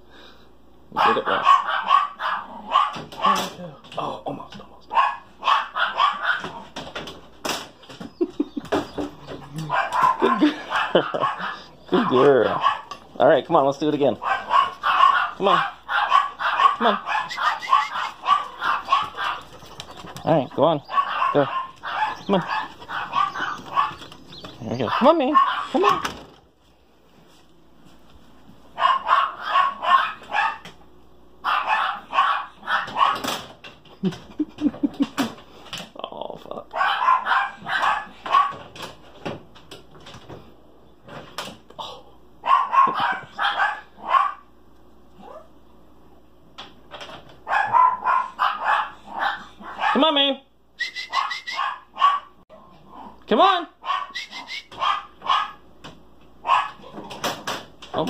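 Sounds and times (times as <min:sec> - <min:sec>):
puppy barking: 0:00.9 - 0:03.6, 0:04.9 - 0:06.7, 0:09.6 - 0:13.0, 0:14.1 - 0:26.1, 0:28.7 - 0:30.7, 0:31.4 - 0:33.4, 0:36.7 - 0:38.7, 0:42.4 - 0:44.5, 0:47.4 - 0:50.1, 0:51.1 - 0:53.2, 0:53.8 - 0:55.6, 0:56.4 - 0:57.0
dog whining: 0:16.2 - 0:26.1, 0:45.2 - 0:45.6, 0:53.9 - 0:55.4.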